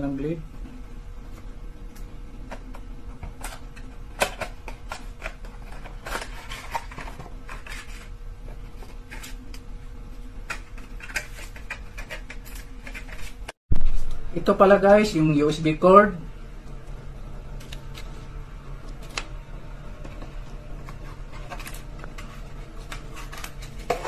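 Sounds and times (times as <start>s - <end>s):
cardboard packaging being opened: 21.0s - 24.0s.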